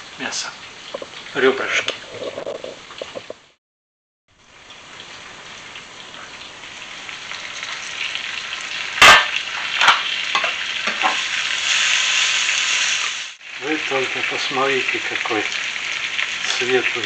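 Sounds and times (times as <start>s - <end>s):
meat sizzling in a frying pan: 0.0s - 2.0s, 4.3s - 17.0s
sharp clack: 9.0s - 11.2s.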